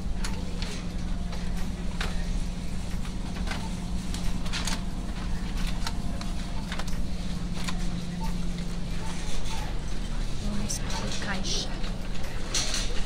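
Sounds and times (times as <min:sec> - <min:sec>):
refrigerated display cases humming: 0:00.0 - 0:13.0.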